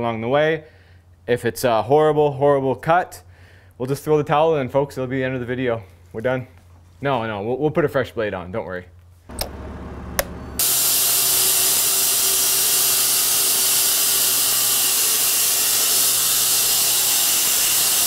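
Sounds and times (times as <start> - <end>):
faint motor hum: 9.0 - 18.0
switch click: 9.3 - 9.6, 10.2 - 10.4
bandsaw blade cutting wood: 10.2 - 18.0.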